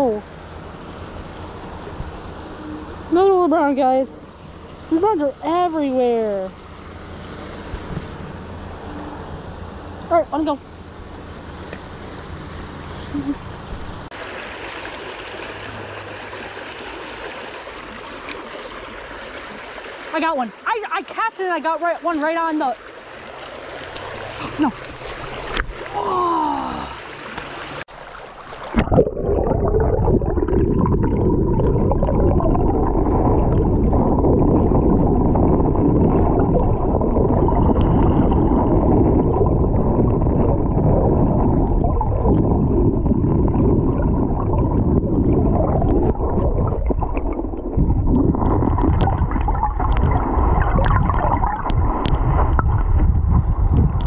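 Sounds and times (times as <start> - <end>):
muffled underwater stream flow: 13.2 - 54.0.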